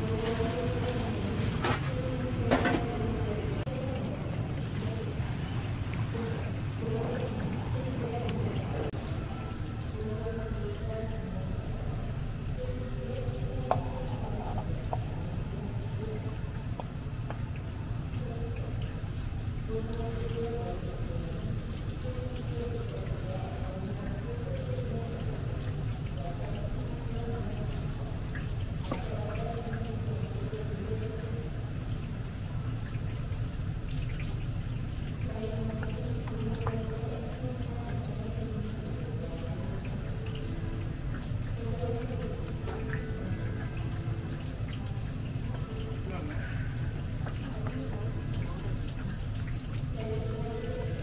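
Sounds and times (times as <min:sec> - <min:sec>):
dripping liquid: 0:00.0 - 0:51.0
sauce bubbling in a pan: 0:12.1 - 0:51.0.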